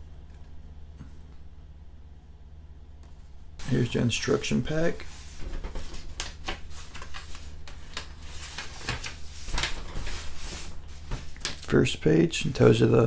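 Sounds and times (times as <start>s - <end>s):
paper rustling and crackling: 3.6s - 11.8s.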